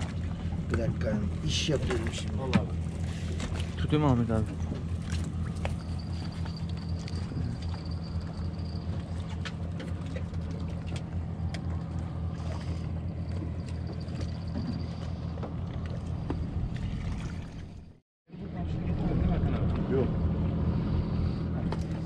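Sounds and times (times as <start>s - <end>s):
boat engine idling: 0.0s - 22.0s.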